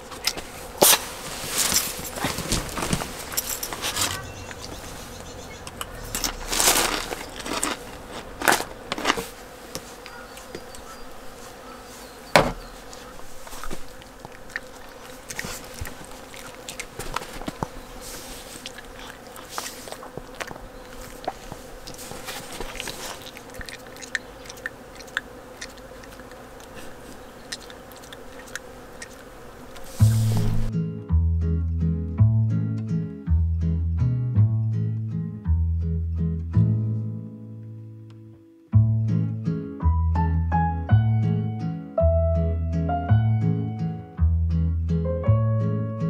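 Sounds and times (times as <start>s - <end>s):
faint buzzing hum: 0.0s - 33.9s
dog chewing crunchy treats: 5.7s - 9.3s, 13.0s - 17.8s, 18.6s - 29.3s.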